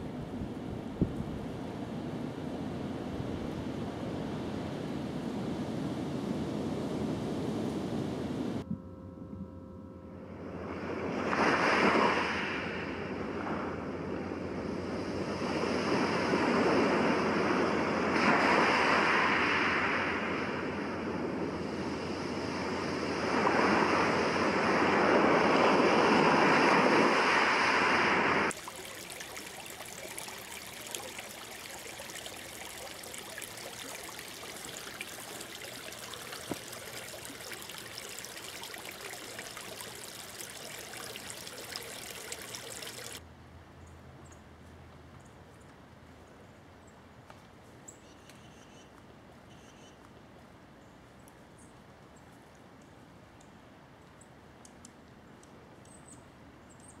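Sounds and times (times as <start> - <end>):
surf washing in: 10.4 - 43.2
steady hiss: 27.4 - 43.2.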